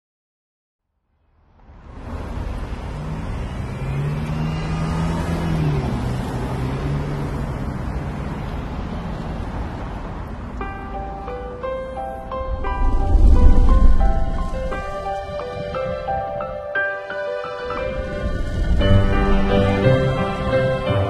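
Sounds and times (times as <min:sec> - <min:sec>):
city traffic rumble: 0:01.2 - 0:21.0
motor vehicle passing: 0:01.6 - 0:16.6, 0:17.5 - 0:21.0
music with pitched notes: 0:11.0 - 0:21.0.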